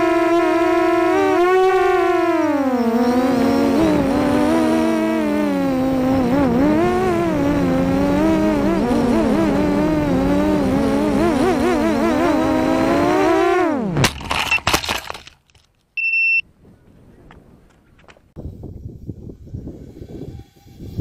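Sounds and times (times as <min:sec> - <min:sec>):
quadcopter motors whining: 0:00.0 - 0:14.0, 0:18.4 - 0:21.0
short electronic beep: 0:16.0 - 0:16.4.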